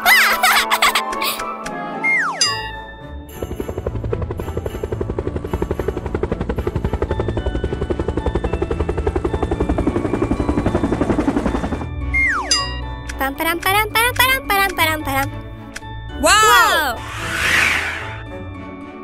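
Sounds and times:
light background music: 0.0 - 19.0
cartoon propeller plane engine: 3.4 - 11.8.

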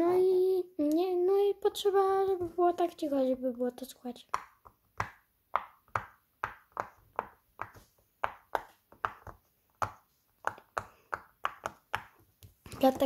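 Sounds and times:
pop-it toy bubbles popping: 4.2 - 13.0.

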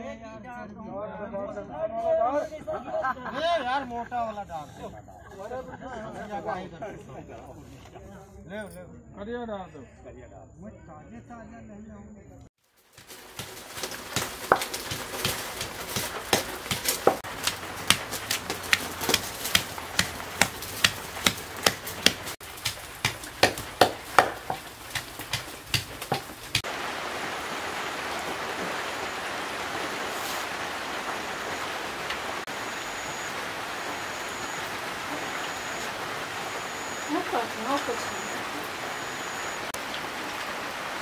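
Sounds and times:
steady hiss: 12.8 - 41.0
pestle pounding in a mortar: 13.0 - 26.7.

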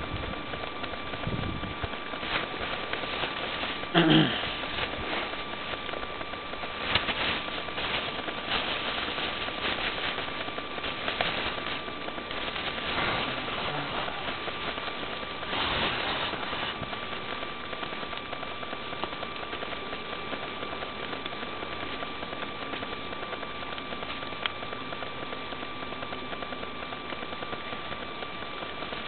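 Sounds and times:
thin high hum: 0.0 - 25.3
steady hiss: 0.0 - 29.0
plastic bag crinkling: 2.1 - 17.4.

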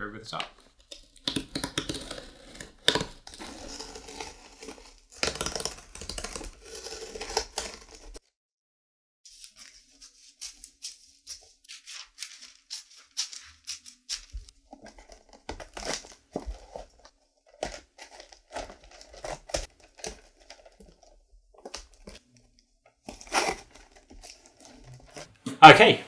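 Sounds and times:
knife cutting cardboard: 0.6 - 8.2, 23.0 - 25.3
scissors snipping paper: 0.6 - 8.2, 9.3 - 16.9.

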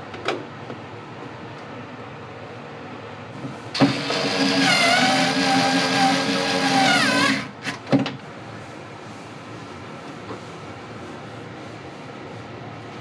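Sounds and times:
furnace motor humming: 3.7 - 7.7.

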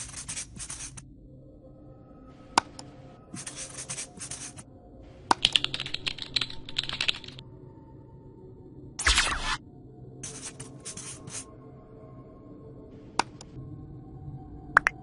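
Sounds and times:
marker writing scratch: 0.0 - 1.0, 3.4 - 4.6, 10.2 - 11.4
keyboard typing: 5.3 - 7.4.

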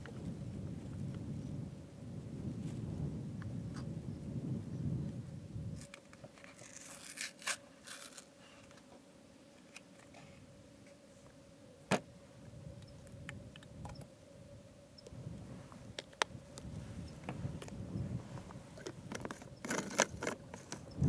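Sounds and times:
faint steady hum: 0.0 - 21.0
clicks and scrapes of handling: 5.8 - 8.9, 18.4 - 20.9.

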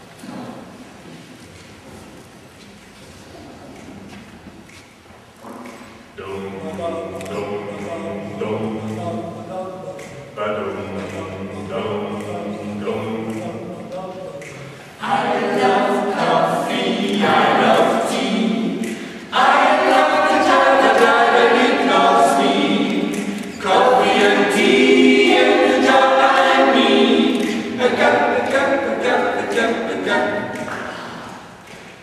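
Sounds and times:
a cappella group singing: 6.2 - 31.6.

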